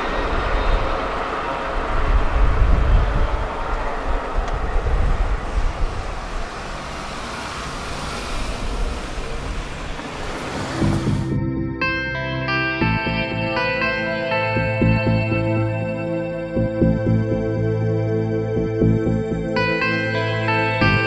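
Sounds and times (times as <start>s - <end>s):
traffic and rail rumble: 0.0s - 21.0s
car driving over crossing: 3.5s - 11.7s
guitar music: 10.5s - 21.0s.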